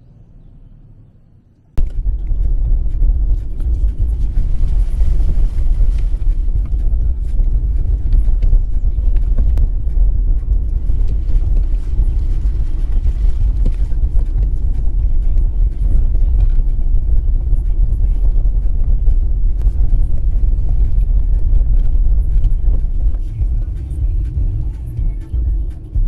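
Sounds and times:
vehicle on dirt road rumbling: 0:00.0 - 0:26.0.

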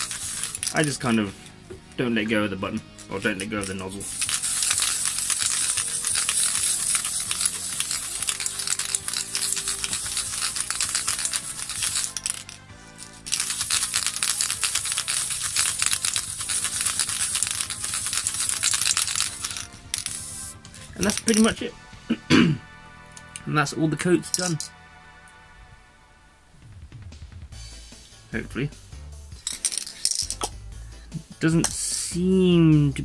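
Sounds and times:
spray can hissing and spluttering: 0:00.0 - 0:01.6, 0:02.8 - 0:21.5
background music: 0:00.0 - 0:33.0.

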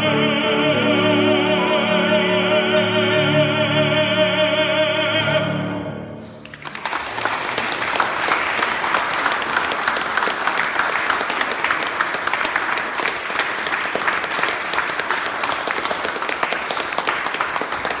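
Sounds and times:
audience applauding: 0:06.2 - 0:18.0.

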